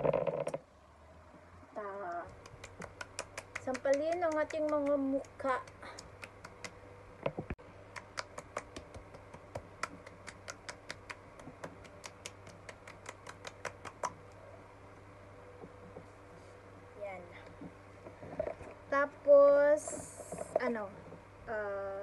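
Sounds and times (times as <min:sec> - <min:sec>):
palms slapping cheeks: 0:02.0 - 0:14.4.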